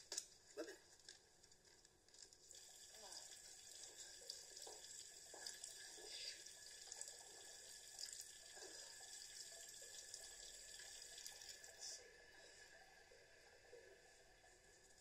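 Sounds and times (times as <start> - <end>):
tap running into washbasin: 2.5 - 11.8.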